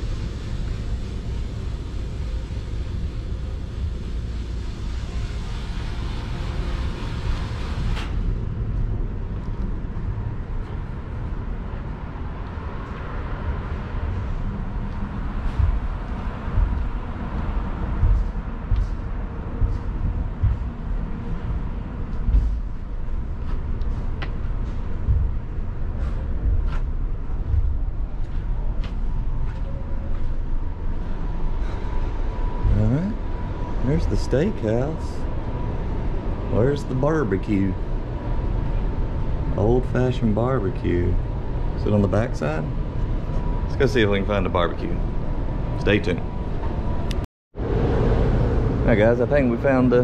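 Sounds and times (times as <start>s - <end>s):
low rumble aboard ship: 0.0s - 50.0s
thin constant hum: 0.0s - 50.0s
faint footsteps: 12.4s - 34.7s.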